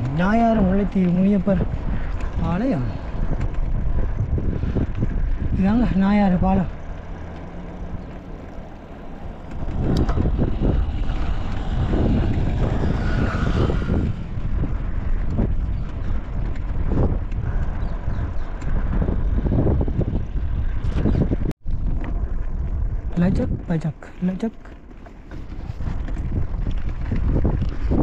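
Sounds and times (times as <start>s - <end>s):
wind buffeting microphone: 0.0s - 28.0s.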